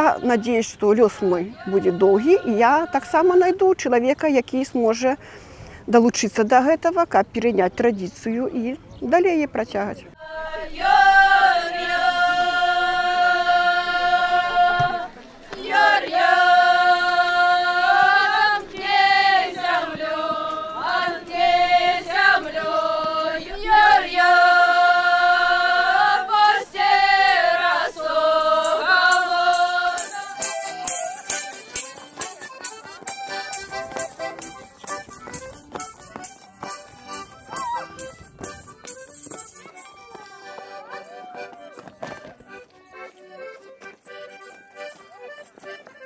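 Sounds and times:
group singing in unison: 0.0s - 3.3s, 10.2s - 31.3s
quick rhythmic percussion strikes: 28.3s - 40.9s.

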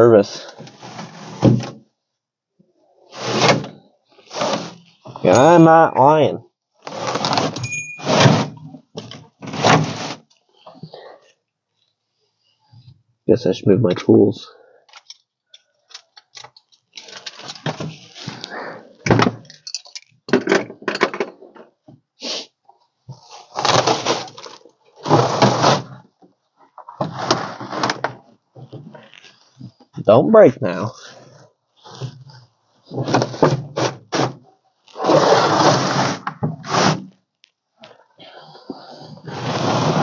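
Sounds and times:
carpet scraping and tearing: 3.1s - 4.9s, 6.8s - 8.6s, 9.4s - 10.4s, 23.2s - 26.0s, 27.0s - 28.1s, 31.1s - 37.2s, 38.9s - 40.0s
carpet ripping: 23.4s - 25.9s.

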